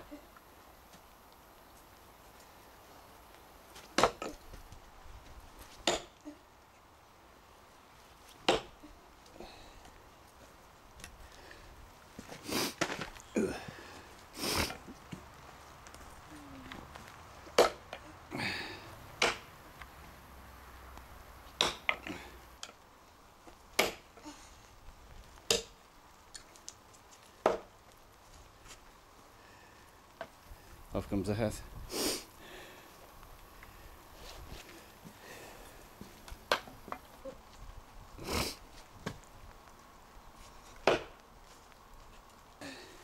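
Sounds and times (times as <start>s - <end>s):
tomahawk chopping log: 4.0s - 4.3s, 5.8s - 6.1s, 8.4s - 8.7s, 19.2s - 19.5s, 21.6s - 22.1s, 23.8s - 24.0s, 40.8s - 41.2s.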